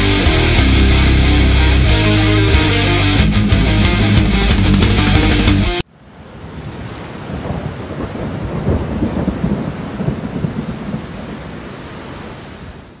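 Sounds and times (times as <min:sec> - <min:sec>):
thunder rumbling: 0:07.2 - 0:11.7.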